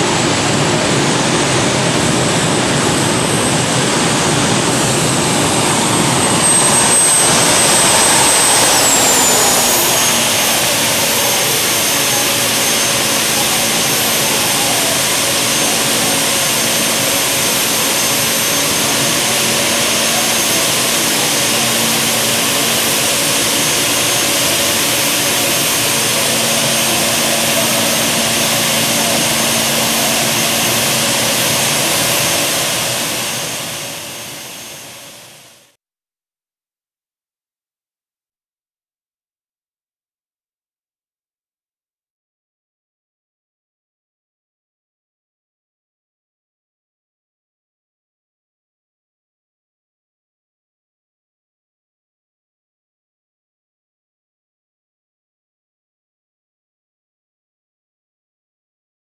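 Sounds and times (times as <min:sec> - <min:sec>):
gas-turbine engine jet whine: 0:00.0 - 0:35.6.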